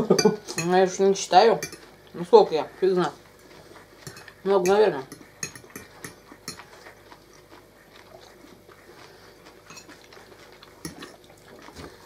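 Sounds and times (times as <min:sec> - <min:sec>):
cutlery clicking on plates: 0:01.6 - 0:01.9, 0:04.0 - 0:06.7.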